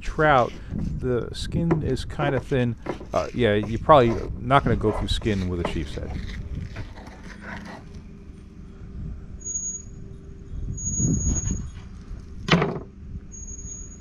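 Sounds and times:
knife cutting fish fillet: 0:00.4 - 0:01.0, 0:01.8 - 0:07.9
thin high whine: 0:07.8 - 0:12.4.

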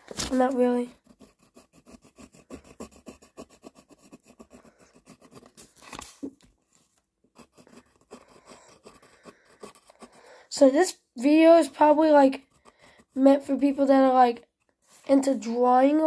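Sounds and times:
pencil scratching on paper: 0:00.2 - 0:06.3, 0:07.3 - 0:16.0.

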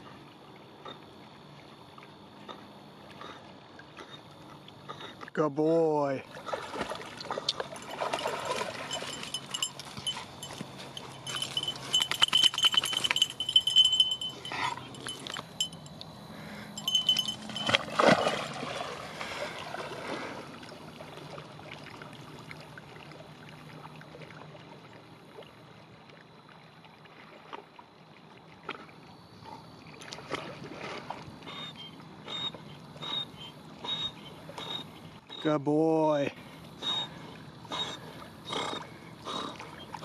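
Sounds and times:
steady water noise: 0:00.0 - 0:40.0
splashing water: 0:06.2 - 0:15.8, 0:16.8 - 0:24.7
dog wading through reeds: 0:06.3 - 0:24.4
high chiming tone: 0:08.7 - 0:16.0, 0:16.8 - 0:17.9.

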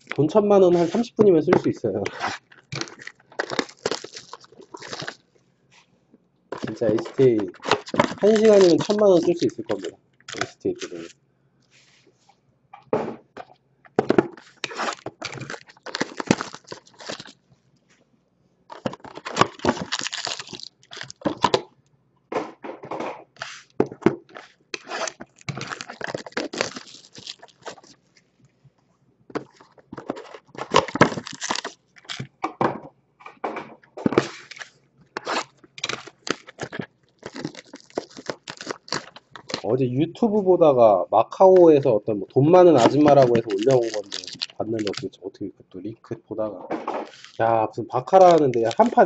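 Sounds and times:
plastic shrink wrap crinkling: 0:00.0 - 0:05.2, 0:06.5 - 0:11.1, 0:14.3 - 0:17.5, 0:18.7 - 0:21.6, 0:24.3 - 0:28.3, 0:29.4 - 0:32.3, 0:34.2 - 0:40.5, 0:41.4 - 0:45.1, 0:47.0 - 0:49.0
cardboard ripping: 0:00.1 - 0:05.2, 0:06.6 - 0:11.1, 0:14.2 - 0:17.4, 0:18.7 - 0:21.6, 0:24.3 - 0:27.9, 0:29.4 - 0:32.3, 0:34.2 - 0:39.7, 0:42.7 - 0:45.1, 0:47.0 - 0:47.4, 0:48.1 - 0:49.0.

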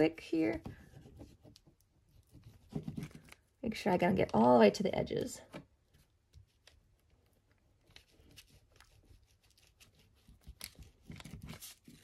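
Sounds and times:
paper rustling: 0:07.7 - 0:12.0.

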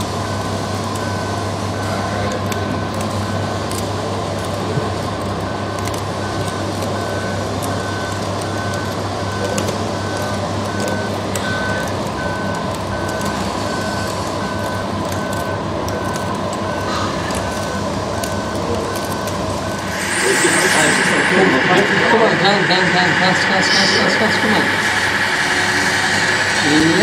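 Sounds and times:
warning beeper: 0:16.0 - 0:27.0
motor hum: 0:19.2 - 0:27.0.

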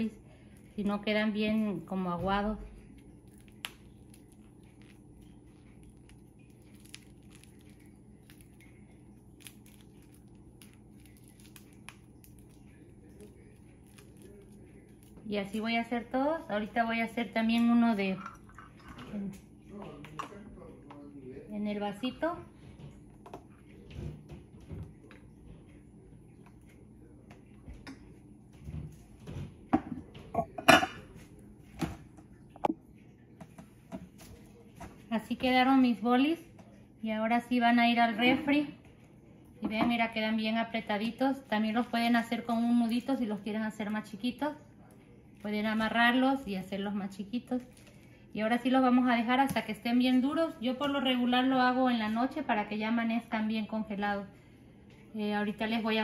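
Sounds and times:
low steady hum: 0:00.0 - 0:56.0
plastic bag crinkling: 0:47.5 - 0:48.2.

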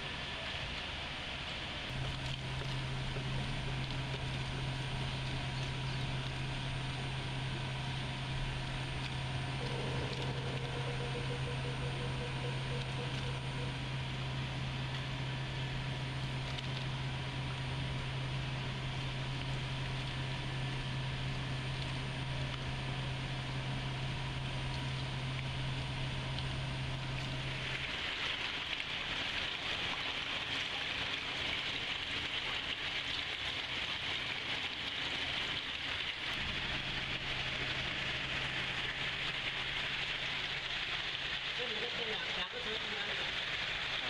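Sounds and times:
running splashing water: 0:27.0 - 0:44.0.

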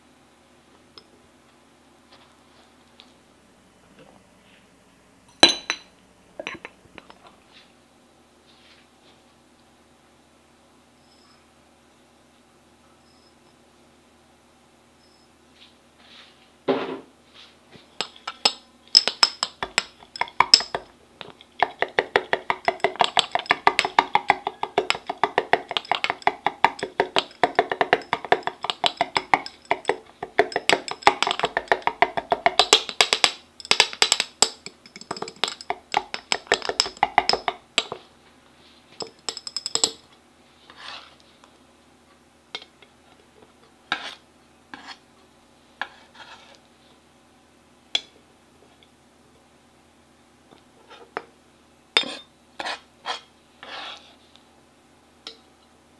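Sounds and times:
metal utensil knocking glass bottle: 0:05.4 - 0:06.7, 0:18.4 - 0:20.9, 0:21.6 - 0:38.0, 0:39.0 - 0:40.0.

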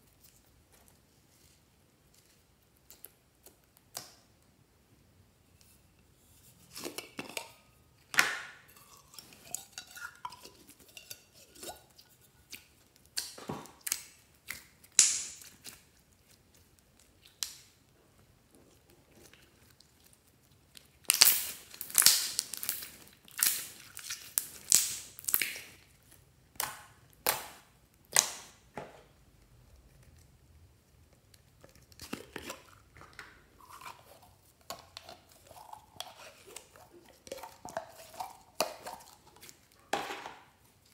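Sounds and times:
slime squelching: 0:18.7 - 0:28.6, 0:29.2 - 0:39.9.

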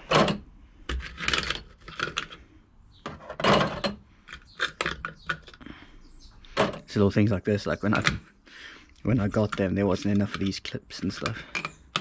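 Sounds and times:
metal hardware clinking and rattling: 0:00.0 - 0:02.4, 0:03.0 - 0:05.6, 0:09.2 - 0:12.0.

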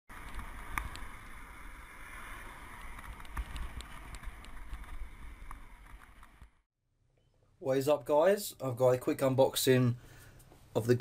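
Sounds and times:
road and tyre noise: 0:00.1 - 0:06.6.

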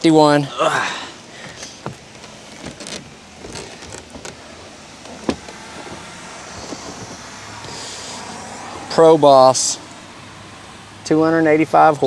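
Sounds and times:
steady background noise: 0:00.0 - 0:12.0
light clicks and knocks: 0:01.4 - 0:04.4, 0:05.0 - 0:07.8.

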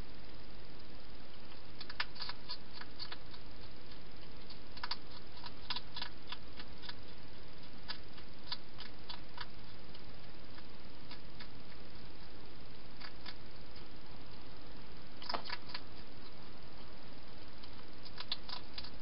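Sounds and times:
steady background hiss: 0:00.0 - 0:19.0
hedgehog chewing clicks: 0:01.5 - 0:12.3, 0:13.0 - 0:14.4, 0:15.2 - 0:16.4, 0:17.6 - 0:19.0.

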